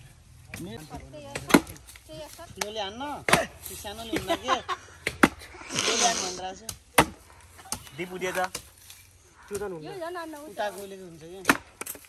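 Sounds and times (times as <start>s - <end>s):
voices talking: 0.6s - 6.9s
axe chopping log: 1.3s - 4.3s, 5.0s - 5.5s, 6.6s - 8.7s, 11.4s - 12.0s.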